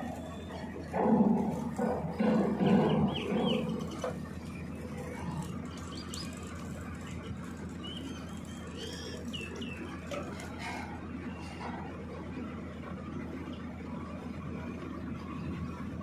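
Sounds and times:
low animal calls: 0.0s - 4.2s
birds chirping: 0.0s - 11.7s
low machinery hum: 0.0s - 16.0s.

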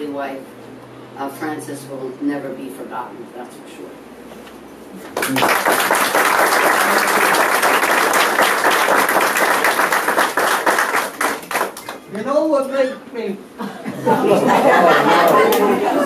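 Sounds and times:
audience applauding: 5.1s - 12.1s.

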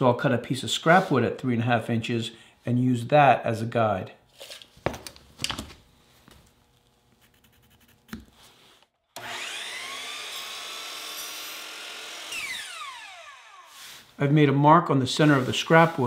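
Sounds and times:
miter saw cutting wood: 9.2s - 14.1s.

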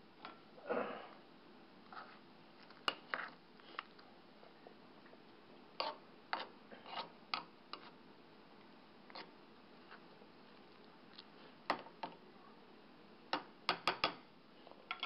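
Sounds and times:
pot of beans boiling: 0.0s - 15.0s
spoon knocking in a pot: 13.3s - 14.2s.

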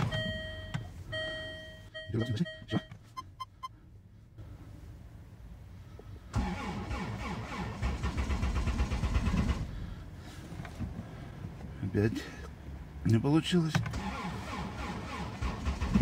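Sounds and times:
short beeps: 0.0s - 3.8s
starter cranking engine: 6.4s - 9.8s, 13.9s - 16.0s.

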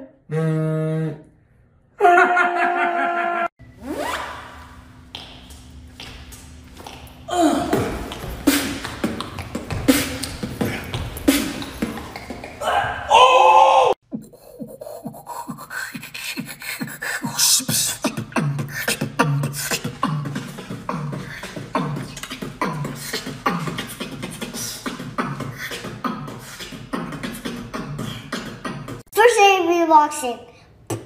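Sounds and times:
human beatboxing: 7.3s - 12.7s, 14.0s - 29.1s.

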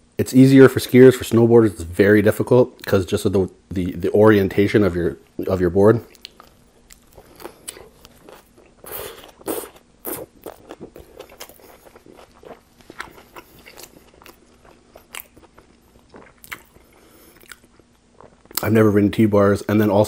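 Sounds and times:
chewing clicks and smacks: 6.1s - 8.8s, 10.1s - 16.8s
crunching bites of sandwich: 6.1s - 18.6s.

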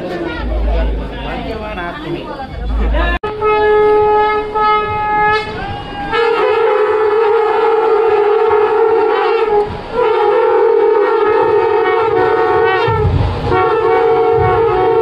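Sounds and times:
conch shells blowing: 3.2s - 15.0s.

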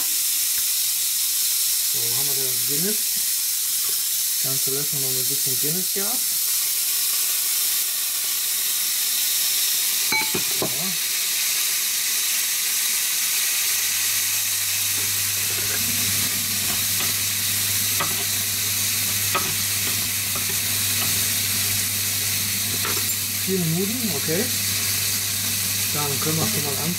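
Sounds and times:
meat sizzling in a grill pan: 0.0s - 26.9s
utensil clicking against pan: 19.0s - 21.4s.

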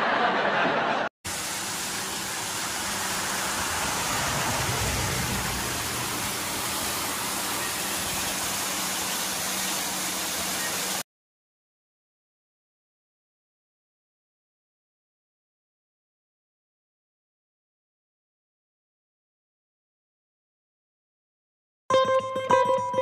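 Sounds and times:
waterfall rushing: 1.3s - 11.0s.

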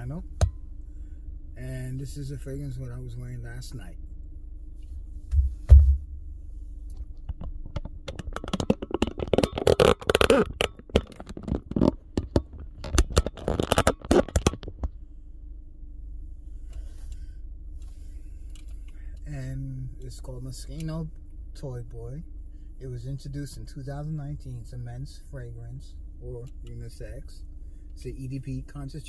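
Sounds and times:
steady low hum: 0.0s - 29.0s
low thumps: 5.2s - 6.3s
handling clicking and scraping: 6.9s - 14.9s.

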